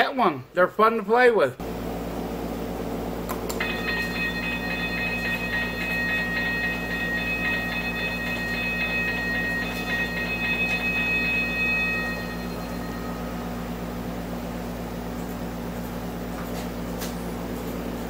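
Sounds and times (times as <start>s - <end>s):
crossing signal bell ringing: 3.6s - 14.8s.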